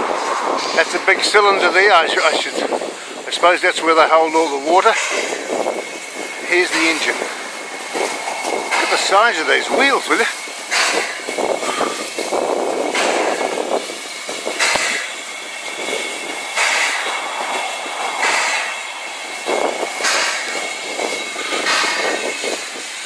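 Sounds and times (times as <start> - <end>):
steam locomotive hissing: 0.0 - 23.0.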